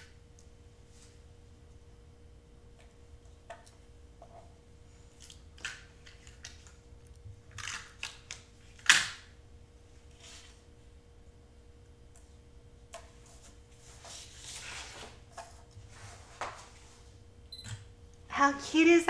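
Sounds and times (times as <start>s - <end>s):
light rustles and scrapes of card: 10.1s - 10.6s, 13.1s - 17.1s.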